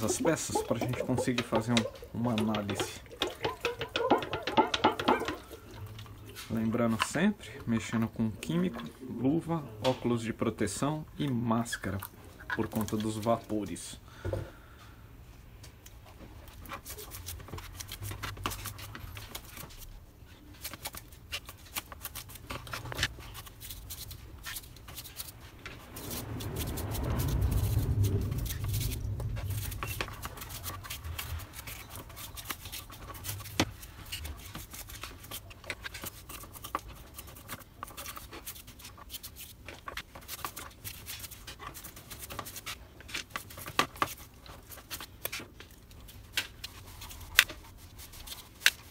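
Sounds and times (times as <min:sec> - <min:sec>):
bristles scrubbing: 0:00.0 - 0:06.8, 0:20.6 - 0:48.9
low-pitched rustling: 0:25.5 - 0:31.6.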